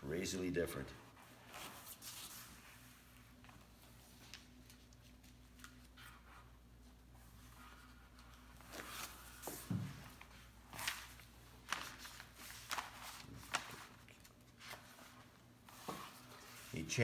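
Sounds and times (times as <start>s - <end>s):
paper rustling: 7.6s - 16.7s.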